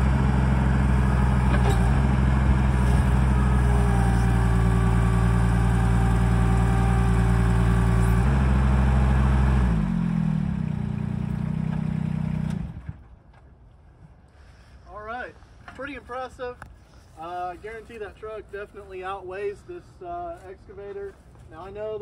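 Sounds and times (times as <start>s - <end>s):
diesel engine running under load: 0.0s - 13.0s.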